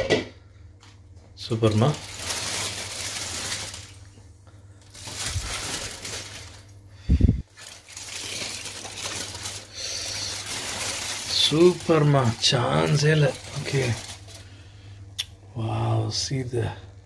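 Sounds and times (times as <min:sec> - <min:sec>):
aluminium foil crinkling: 0:01.4 - 0:04.2, 0:04.8 - 0:14.8.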